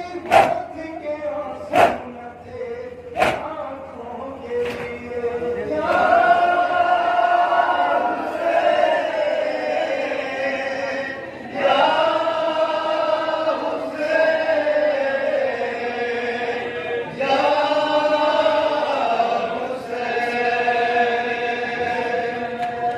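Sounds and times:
man chanting a lament: 0.0 - 6.0.

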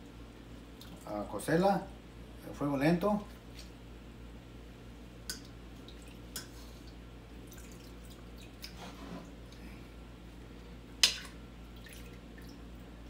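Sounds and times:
low steady hum: 0.0 - 13.0
water dripping and splashing: 5.3 - 8.8, 11.0 - 12.6.

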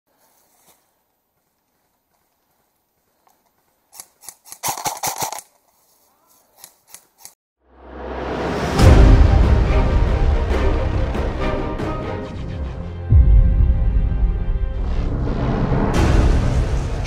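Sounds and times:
music: 7.6 - 17.0.

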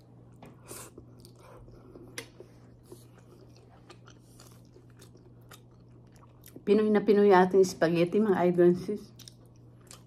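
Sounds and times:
person chewing food: 0.0 - 6.6, 9.1 - 10.0.

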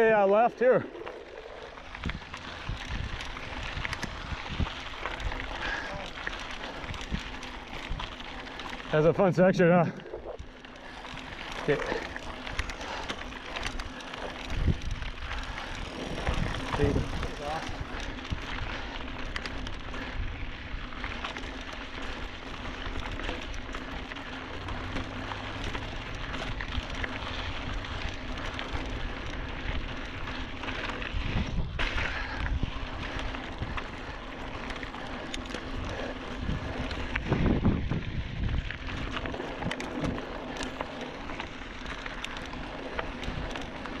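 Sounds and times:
bike tyres on dirt and stones: 0.0 - 44.0
small clicks and rattles: 0.1 - 44.0
wind noise on microphone: 1.4 - 5.9, 6.5 - 8.4, 13.5 - 23.7, 26.2 - 44.0.

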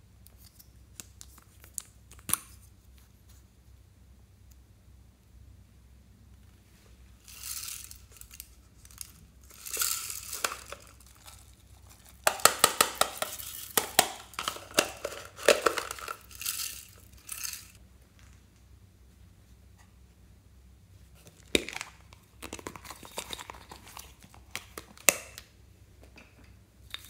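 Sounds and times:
sequins pattering into glass dish: 7.2 - 17.8.

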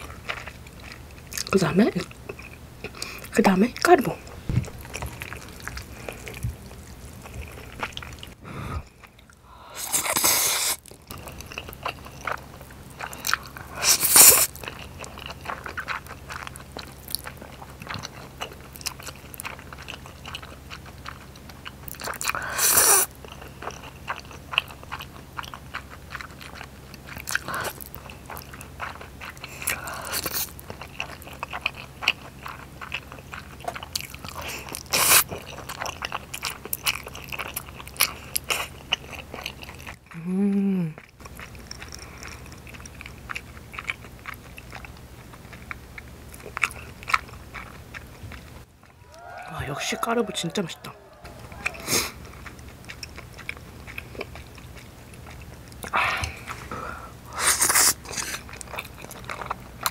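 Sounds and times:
wet chewing and biting: 0.0 - 59.9
loud slurp of noodles: 9.7 - 10.8, 13.8 - 14.5, 22.5 - 23.1, 57.3 - 58.4.

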